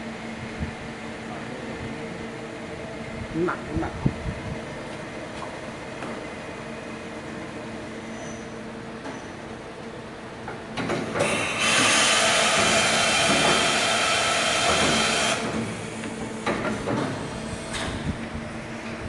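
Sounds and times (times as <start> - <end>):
loud even hiss: 11.2 - 15.5.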